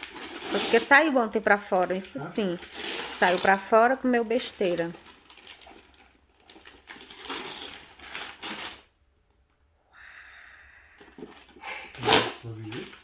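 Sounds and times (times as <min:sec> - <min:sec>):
wrapping paper rustling and tearing: 0:00.0 - 0:01.1, 0:01.9 - 0:08.9, 0:11.2 - 0:13.0.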